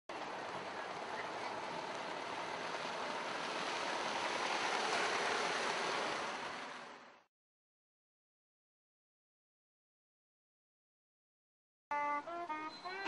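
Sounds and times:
vehicle driving past on dirt: 0.1 - 7.3.

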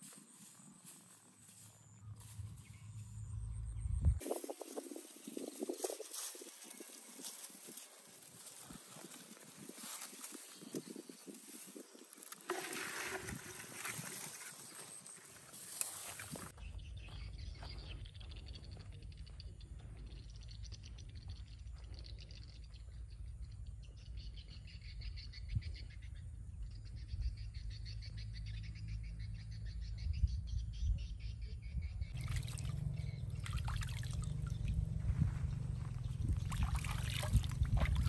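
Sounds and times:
wind rumble on microphone: 2.2 - 12.2, 16.3 - 38.0
water splashing and trickling: 4.2 - 16.6, 32.1 - 38.0
faint high-pitched chirping: 13.9 - 32.2.

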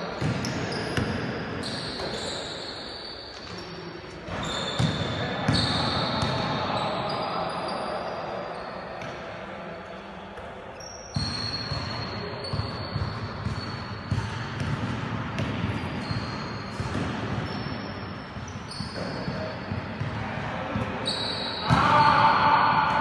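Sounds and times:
ball bouncing on court floor: 0.2 - 2.3, 4.3 - 6.6, 11.2 - 23.0.

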